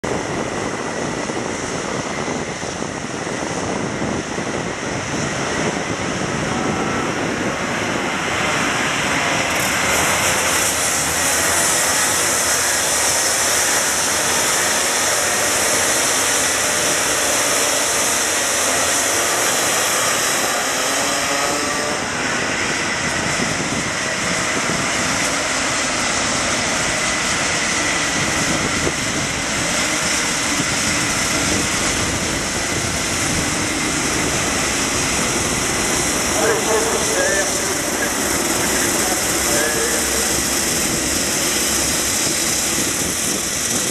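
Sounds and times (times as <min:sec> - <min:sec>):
racing kart engines revving: 0:00.0 - 0:43.9.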